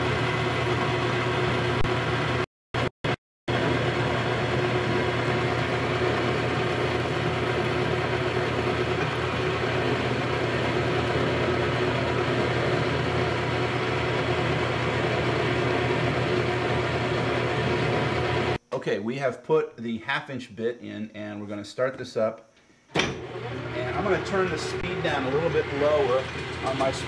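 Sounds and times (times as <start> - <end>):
metal lathe humming: 3.5 - 18.6, 23.1 - 27.0
drill bit cutting metal: 23.2 - 27.0.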